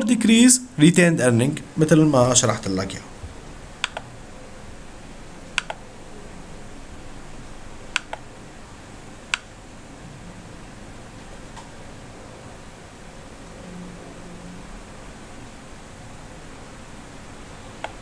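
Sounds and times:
steady low hiss: 0.0 - 18.0
computer mouse clicking: 3.8 - 4.1, 5.5 - 5.8, 7.9 - 8.2, 9.3 - 9.5, 17.8 - 18.0.

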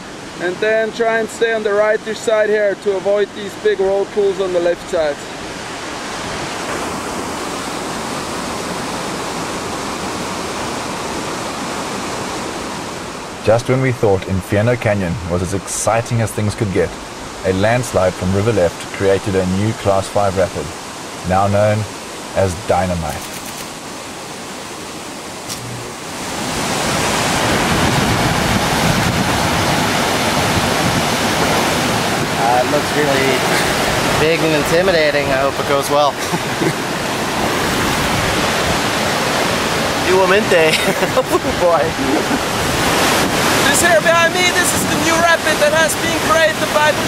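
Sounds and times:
whitewater rapid rushing: 0.0 - 47.0.

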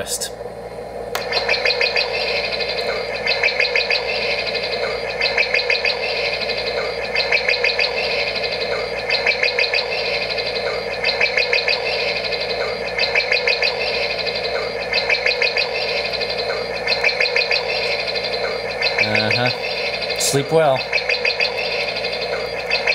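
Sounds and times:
bird chirps from small speaker: 1.3 - 22.9.

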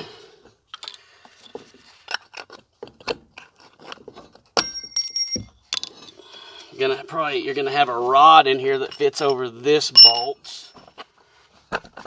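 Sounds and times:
sharp ringing metallic clink: 4.6 - 5.5, 10.0 - 10.4.

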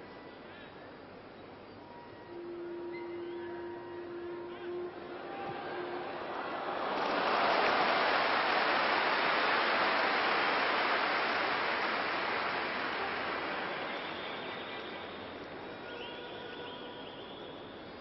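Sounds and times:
stadium crowd noise: 0.0 - 18.0.

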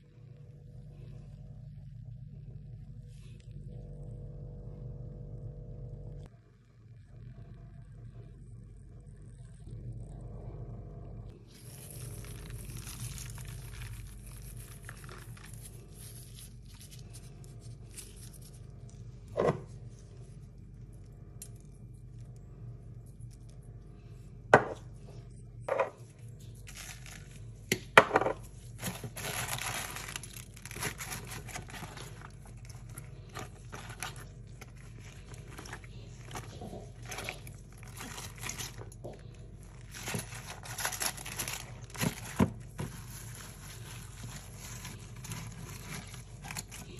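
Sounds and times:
cabbage leaves rustling and crackling: 11.4 - 18.6, 26.6 - 27.4, 28.6 - 38.9, 39.6 - 46.9.

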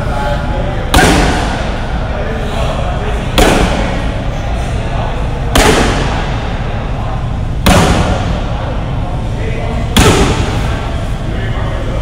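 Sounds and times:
kicks smacking a kick shield: 0.9 - 1.5, 5.6 - 6.1, 7.6 - 8.2.

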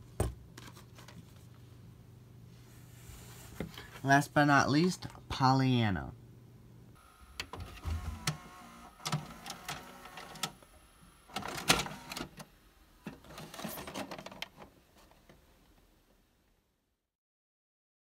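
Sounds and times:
tape loading mechanism whirring: 7.0 - 12.5
mechanical clicks and clunks: 7.3 - 10.7, 11.3 - 12.5.

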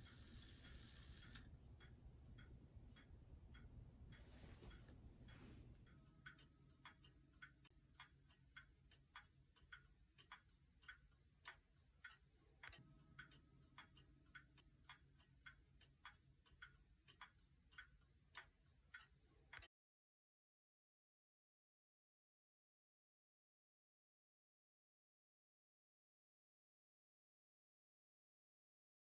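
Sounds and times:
wall clock ticking: 0.0 - 19.7.

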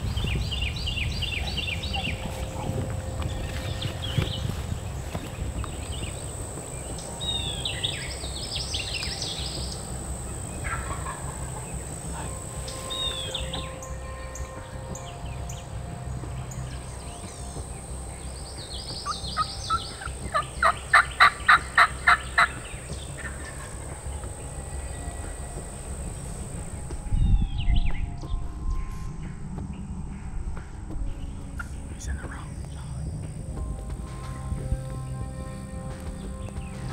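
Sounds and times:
songbirds chirping: 0.0 - 36.9
wild turkey yelping: 7.2 - 14.6, 18.6 - 26.8.

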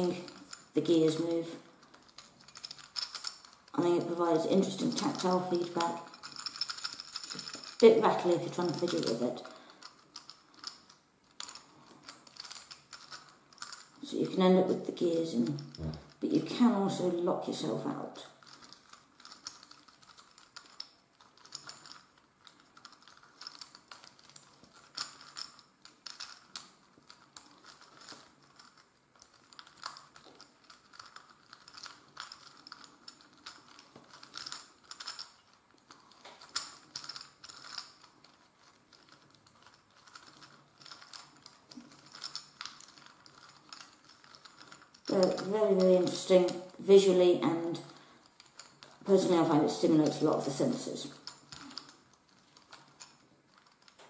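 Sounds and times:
plastic gear cube clicking: 1.8 - 3.8, 4.6 - 14.0, 18.4 - 45.4, 48.2 - 49.0.

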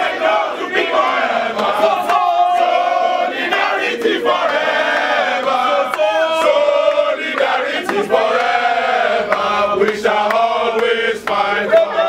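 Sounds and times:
crowd chanting in unison: 0.0 - 12.0.

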